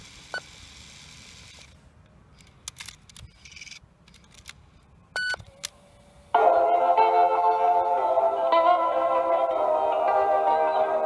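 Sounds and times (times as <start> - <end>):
tape hiss: 4.6 - 11.0.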